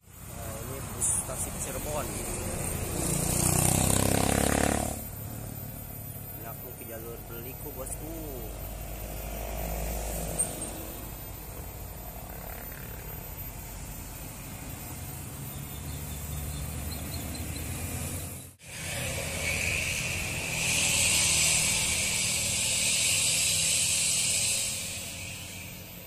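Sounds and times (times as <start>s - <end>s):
loud steady high hiss: 0.0s - 26.0s
vehicle engines rumbling: 0.0s - 26.0s.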